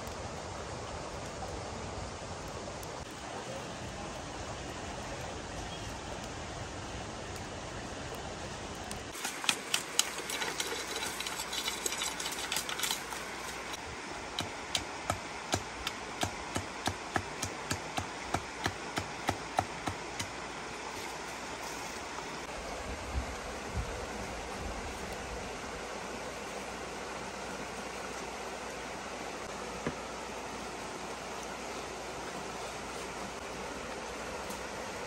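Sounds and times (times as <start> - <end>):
knife chopping bamboo: 14.4 - 20.3.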